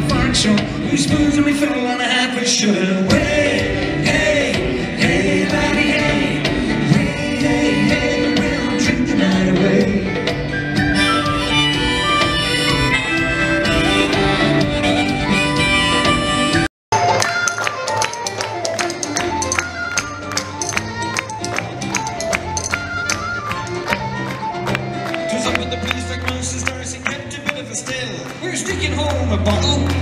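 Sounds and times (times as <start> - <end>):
folk band playing live: 0.0 - 1.9, 2.8 - 30.0
person singing: 0.0 - 15.6.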